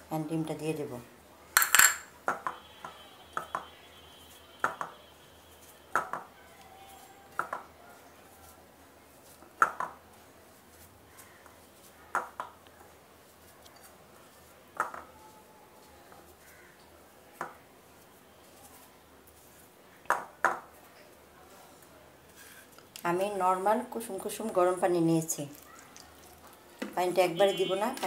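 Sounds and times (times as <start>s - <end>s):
ceramic bowl clinking and knocking: 1.6s - 2.1s.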